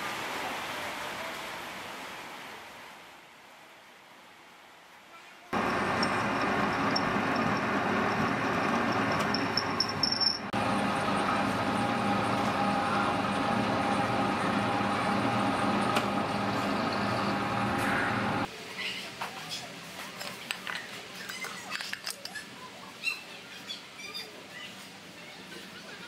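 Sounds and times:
metal lathe humming: 0:05.6 - 0:18.5.

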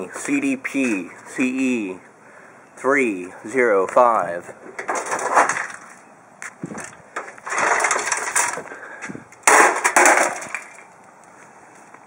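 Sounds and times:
clattering: 0:04.6 - 0:06.0, 0:06.8 - 0:08.7, 0:09.4 - 0:10.9
casing crashing on pavement: 0:04.7 - 0:11.0.

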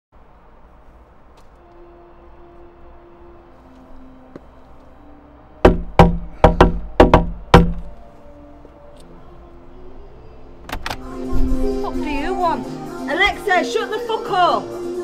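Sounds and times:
knocking on door: 0:05.6 - 0:07.8.

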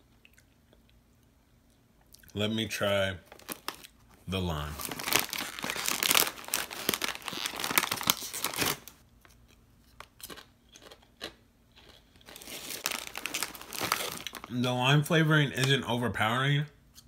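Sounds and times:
chip bag crinkling: 0:03.2 - 0:15.8
chip crunching: 0:03.3 - 0:14.7.

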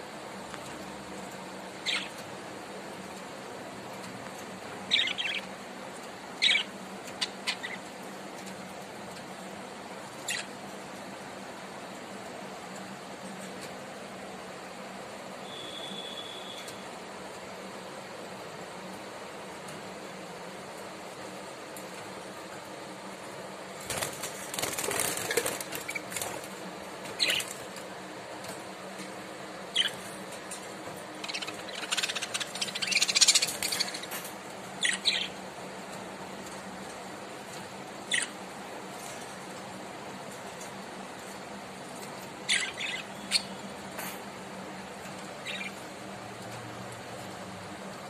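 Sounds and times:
steady background hum: 0:00.0 - 0:48.0
birds fluttering and scrabbling: 0:00.1 - 0:14.7, 0:19.0 - 0:48.0
budgerigars chirping: 0:04.9 - 0:05.5, 0:06.4 - 0:07.8, 0:31.2 - 0:34.1, 0:34.8 - 0:35.4.

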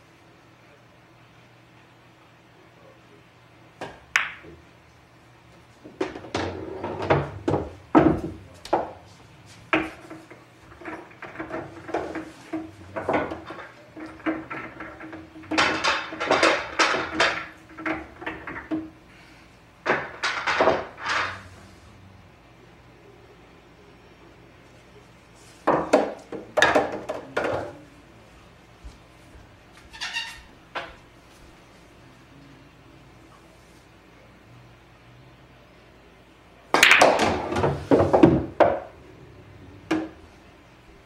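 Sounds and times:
pool balls clacking: 0:03.8 - 0:04.7, 0:05.6 - 0:19.2, 0:19.8 - 0:21.7, 0:25.3 - 0:28.0, 0:36.7 - 0:41.0.

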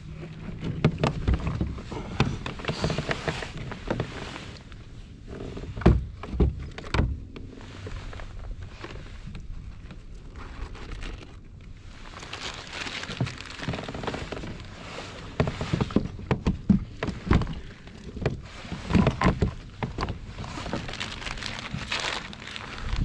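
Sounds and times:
wind on microphone: 0:19.0 - 0:23.0.

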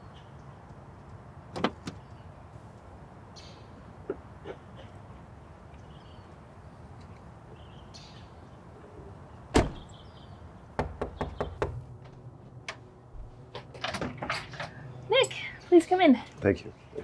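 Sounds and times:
car door slamming: 0:09.5 - 0:09.9.

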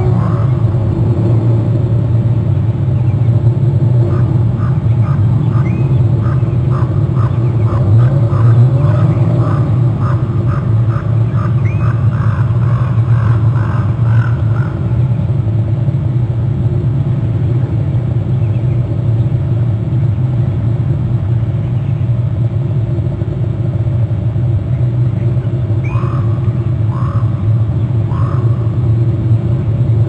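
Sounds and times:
bird calling: 0:00.0 - 0:00.9, 0:04.0 - 0:15.3, 0:24.7 - 0:29.2
low rumble and hum: 0:00.0 - 0:30.0.

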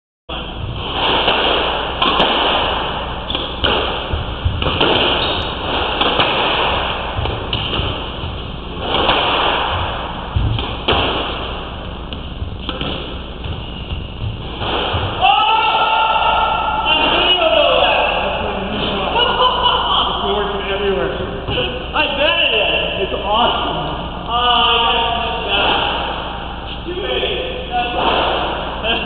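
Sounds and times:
squash ball knocks: 0:01.0 - 0:11.5, 0:12.1 - 0:15.2.

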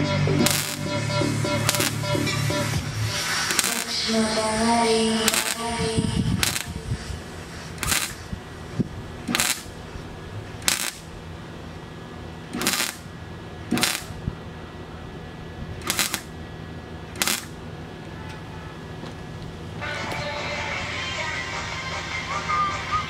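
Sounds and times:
spot welder crackling weld pulses: 0:00.3 - 0:14.4, 0:15.7 - 0:16.5, 0:17.1 - 0:17.7.

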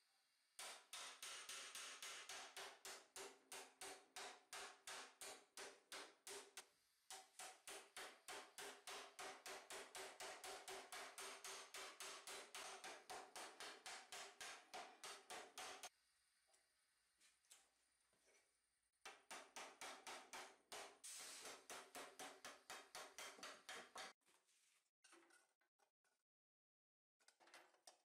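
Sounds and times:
hammer striking hot steel: 0:00.6 - 0:15.9.

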